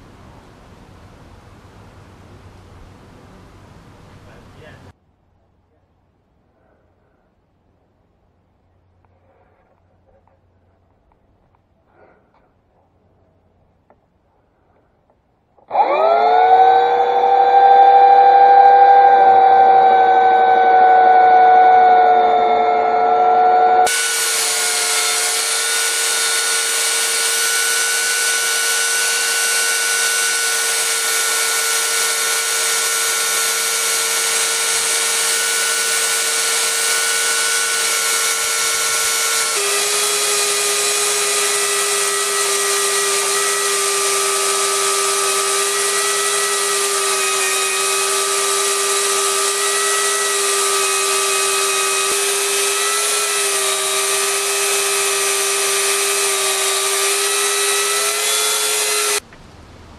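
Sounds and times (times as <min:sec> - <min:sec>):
electric chainsaw ripping log: 0:15.7 - 0:59.2.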